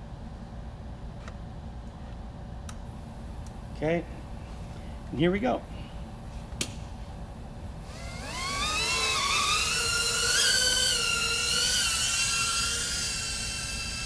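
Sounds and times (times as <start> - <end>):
quadcopter motors whining: 7.8 - 14.0.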